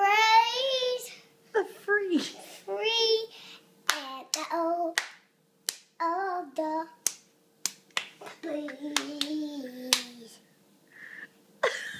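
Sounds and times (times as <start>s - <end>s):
boy clapping hands: 3.9s - 5.9s, 7.0s - 10.2s.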